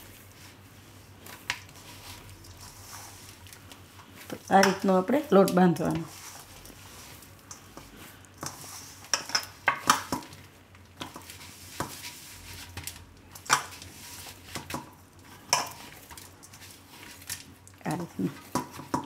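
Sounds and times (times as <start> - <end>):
dough knocking in steel bowl: 18.4 - 19.0.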